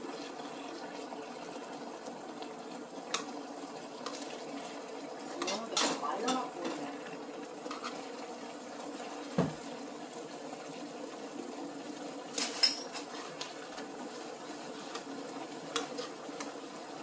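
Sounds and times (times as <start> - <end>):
meat simmering in a frying pan: 0.0 - 17.0.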